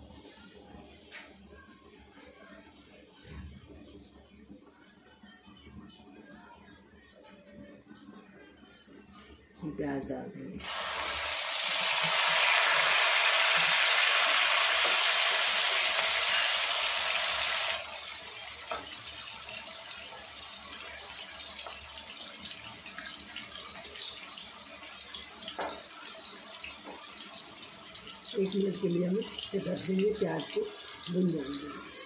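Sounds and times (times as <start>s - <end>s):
onions sizzling in hot oil: 10.6s - 32.0s.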